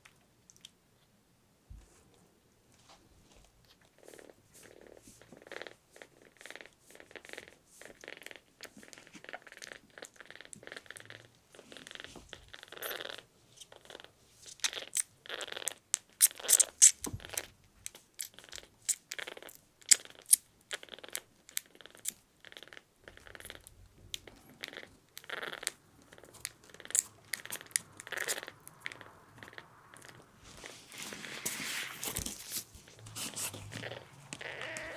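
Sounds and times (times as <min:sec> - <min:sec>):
tissue paper rustling: 0:30.4 - 0:33.7.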